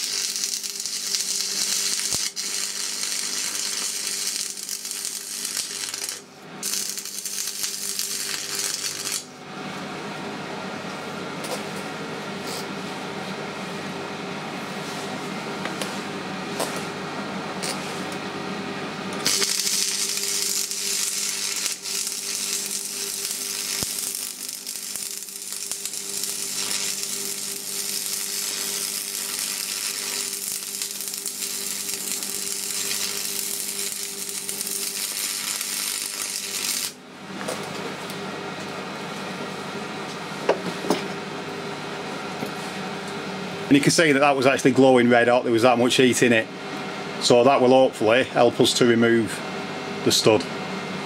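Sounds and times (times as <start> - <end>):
welding arc crackling and hissing: 0.0 - 9.3, 19.2 - 37.0
steady hum: 0.0 - 51.0.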